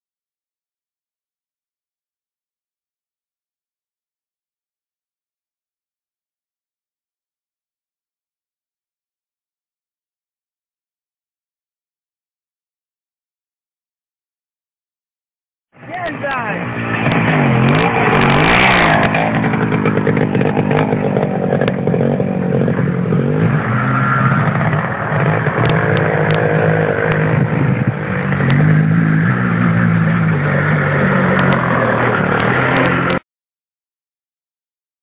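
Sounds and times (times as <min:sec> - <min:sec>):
off-road engine revving: 0:15.8 - 0:33.2.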